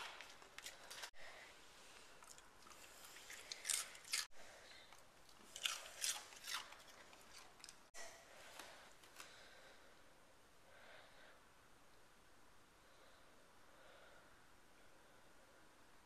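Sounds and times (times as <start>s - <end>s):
dog chewing crunchy food: 2.2s - 4.4s, 5.2s - 7.9s.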